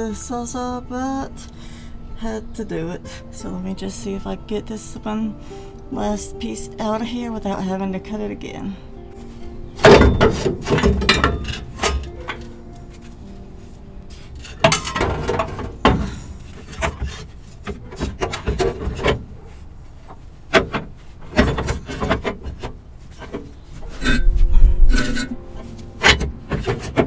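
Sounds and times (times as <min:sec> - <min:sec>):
exhaust pipe scraping and knocking: 0:09.4 - 0:13.2, 0:14.1 - 0:27.0.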